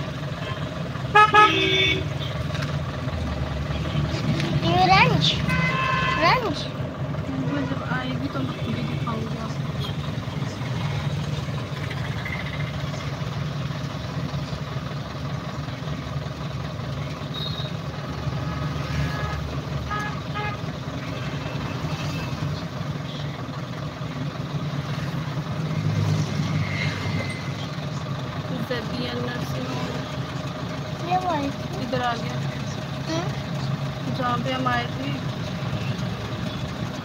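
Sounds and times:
vehicle engine and road rumble: 0.0s - 37.0s
car horn toots: 0.4s - 2.4s, 5.4s - 6.5s, 18.4s - 20.6s.

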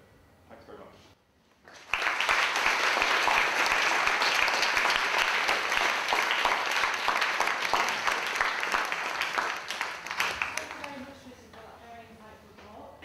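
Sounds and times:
audience applauding: 1.7s - 11.1s.

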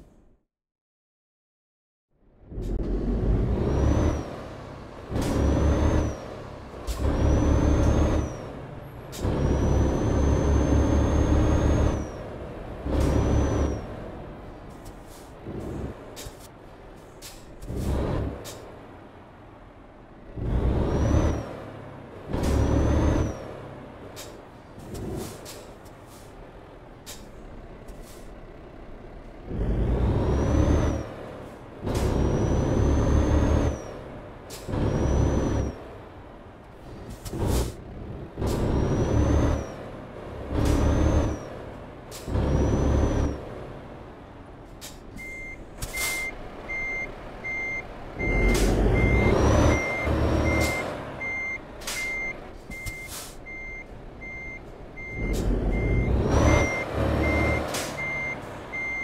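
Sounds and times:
diesel truck engine revving: 2.2s - 59.0s
reversing alarm beeping: 7.0s - 8.5s, 9.4s - 12.2s, 13.0s - 13.9s, 38.6s - 39.8s, 42.4s - 43.4s, 45.2s - 59.0s.

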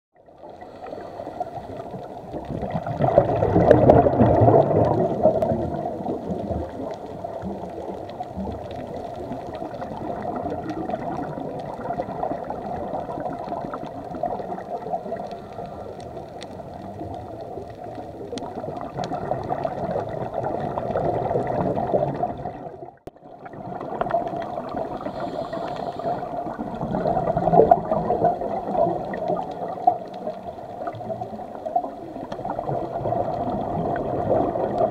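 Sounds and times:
watery wash: 0.2s - 34.9s
scuba regulator breathing bubbles: 0.4s - 22.8s, 23.4s - 34.9s.

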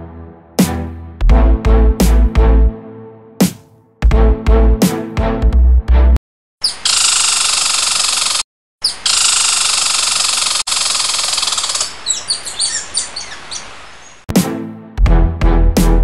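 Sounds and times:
squirrel short high chirps: 6.6s - 7.1s, 11.0s - 14.2s
squirrel raspy chatter: 8.8s - 13.7s.

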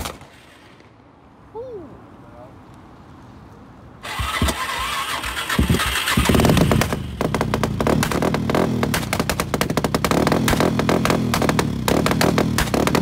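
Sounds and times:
quad engine starting up: 4.0s - 13.0s.

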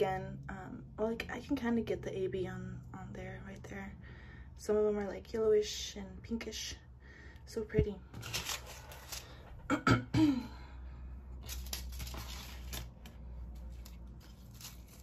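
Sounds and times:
cough-like vocal sound: 9.7s - 10.5s.

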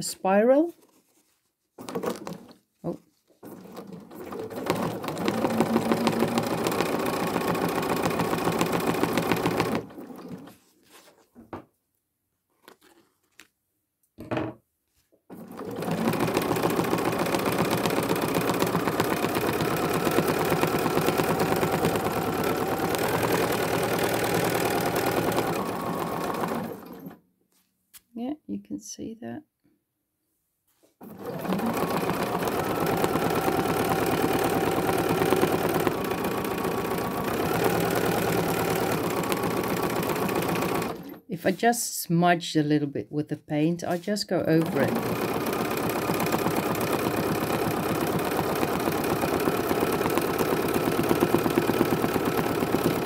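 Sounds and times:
sewing machine stitching fast: 1.8s - 10.6s, 15.3s - 27.2s, 31.0s - 41.3s, 43.9s - 53.0s.

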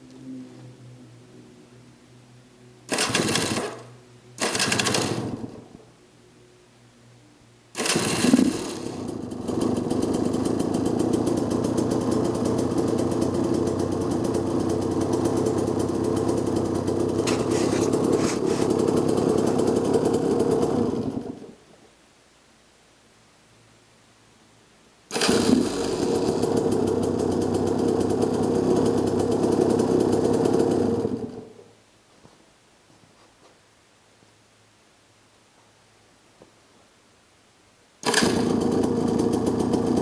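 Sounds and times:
electric starter bursts: 2.9s - 5.8s, 7.7s - 21.6s, 25.1s - 31.6s, 38.0s - 40.0s
two-stroke engine idling: 2.9s - 5.8s, 7.8s - 21.6s, 25.1s - 31.7s, 38.0s - 40.0s.

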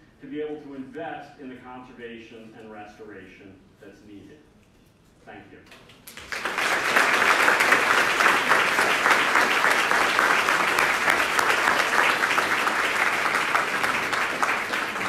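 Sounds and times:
audience applauding: 6.1s - 15.0s.

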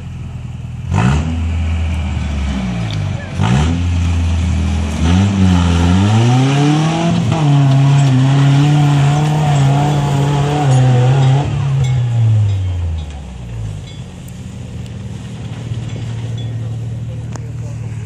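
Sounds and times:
truck engine revving hard: 0.8s - 12.6s.

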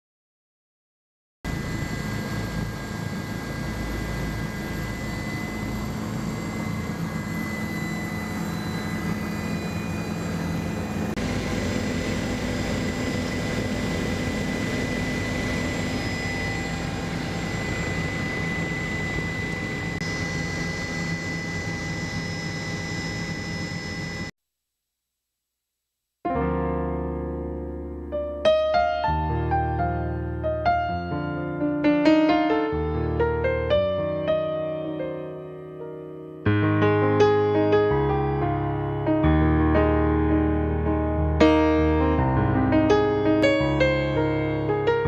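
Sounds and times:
helicopter engine and rotor noise: 1.5s - 24.3s, 42.9s - 45.0s.

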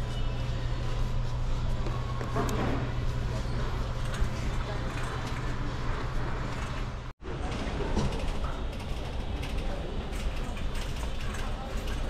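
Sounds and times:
faint voices: 0.0s - 12.0s
steady hum: 0.0s - 12.0s.

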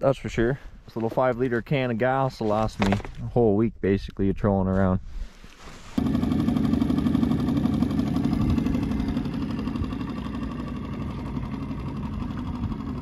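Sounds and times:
outboard motor running: 6.0s - 13.0s.

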